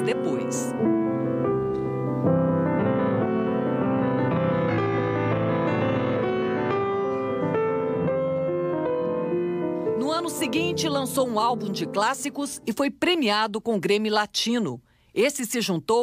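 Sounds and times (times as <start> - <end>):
solo classical piano: 0.0 - 12.6.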